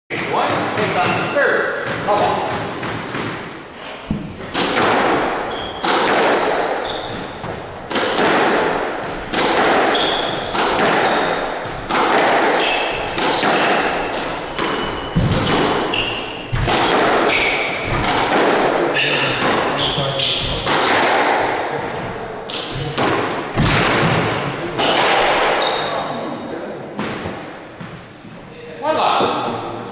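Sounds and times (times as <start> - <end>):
squash ball hitting racquets and walls: 0.1 - 26.1, 26.9 - 28.1
shoes squeaking on hardwood floor: 5.2 - 7.9, 9.1 - 18.2, 18.8 - 20.7, 21.8 - 26.2.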